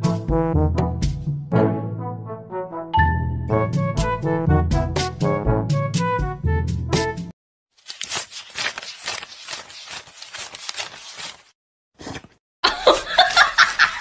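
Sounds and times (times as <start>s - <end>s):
banknotes being counted: 7.8s - 11.5s.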